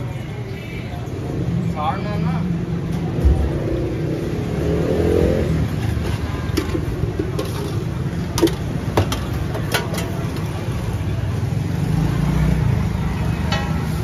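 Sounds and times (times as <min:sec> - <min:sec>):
street traffic rumble: 0:00.0 - 0:14.0
motorcycle engine revving: 0:03.3 - 0:06.0
metal utensils clinking: 0:05.9 - 0:10.7.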